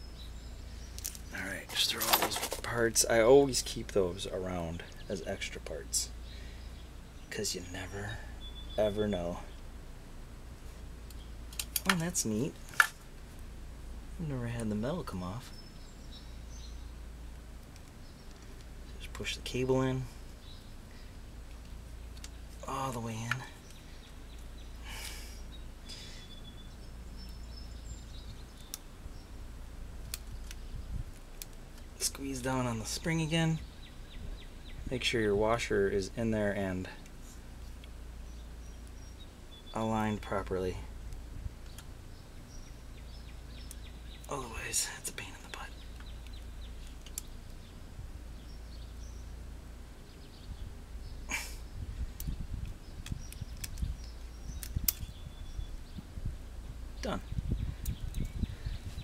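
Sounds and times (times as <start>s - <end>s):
rustling hiss: 0.0s - 39.9s
low outdoor rumble: 0.0s - 59.0s
short rustle: 0.9s - 2.8s
faint bird chirps: 2.6s - 9.7s, 17.9s - 29.4s, 31.8s - 41.0s, 41.6s - 49.4s, 50.0s - 56.2s.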